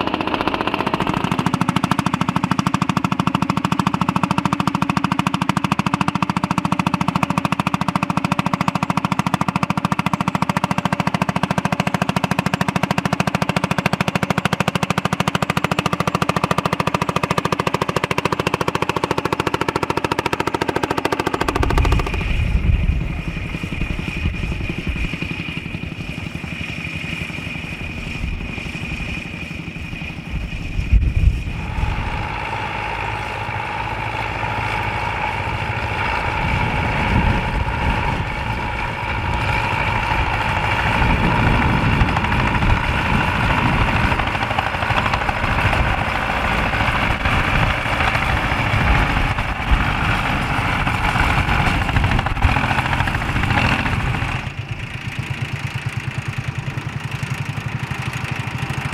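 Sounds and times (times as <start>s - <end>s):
distant tractor engines: 0.0s - 58.9s
tractor engine running under load: 0.0s - 58.9s
wind buffeting microphone: 21.4s - 26.6s, 27.5s - 32.9s, 35.1s - 55.1s.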